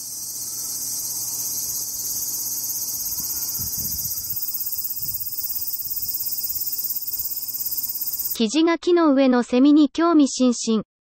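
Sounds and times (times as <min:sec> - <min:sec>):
cicadas buzzing: 0:00.0 - 0:08.4.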